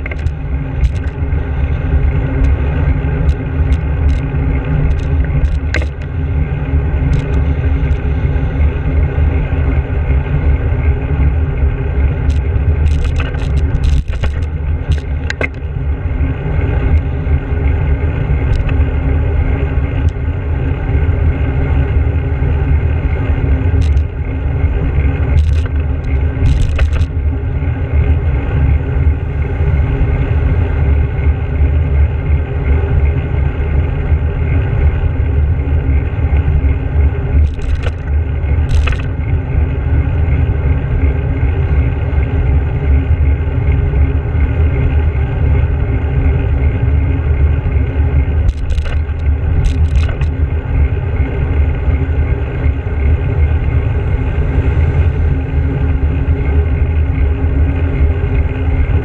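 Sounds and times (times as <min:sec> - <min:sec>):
sharp rattles: 0:00.0 - 0:01.2, 0:03.2 - 0:06.2, 0:07.1 - 0:08.0, 0:12.3 - 0:15.7, 0:23.8 - 0:24.2, 0:25.2 - 0:27.2, 0:37.3 - 0:39.3, 0:48.4 - 0:50.4
wind buffeting and road rumble: 0:00.0 - 0:59.0.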